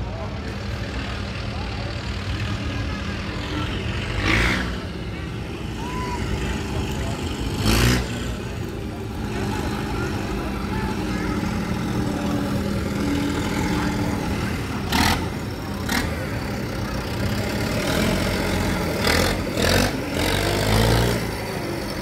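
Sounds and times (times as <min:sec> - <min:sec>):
tractor engine driving past: 0:00.0 - 0:22.0.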